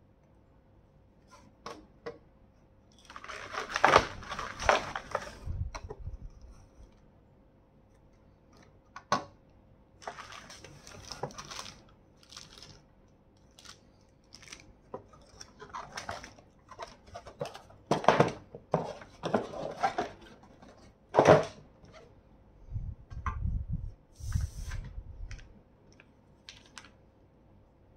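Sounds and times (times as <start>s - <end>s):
plastic and cardboard rustling: 3.0s - 6.9s, 10.0s - 12.8s, 13.5s - 22.0s.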